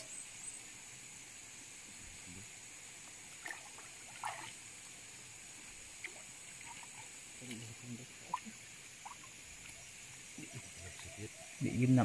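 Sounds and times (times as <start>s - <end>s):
faint high hiss: 0.0s - 12.0s
small water splashes: 2.6s - 11.2s
water sloshing and trickling: 2.6s - 11.4s.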